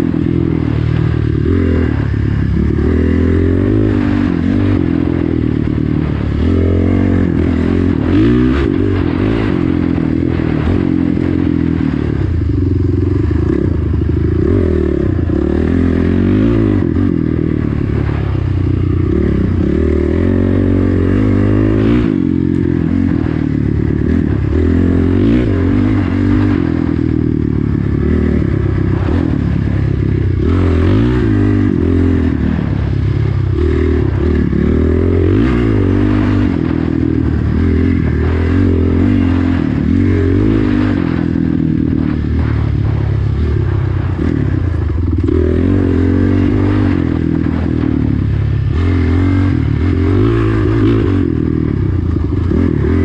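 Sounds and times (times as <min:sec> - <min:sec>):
dirt bike engine revving: 0:00.0 - 0:53.0.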